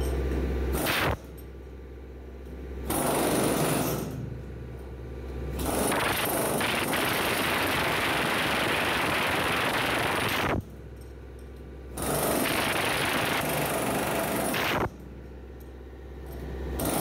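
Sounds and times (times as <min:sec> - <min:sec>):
pneumatic chipping hammer on concrete: 0:00.0 - 0:01.5, 0:02.8 - 0:04.3, 0:05.5 - 0:10.8, 0:11.9 - 0:15.2, 0:16.3 - 0:17.0.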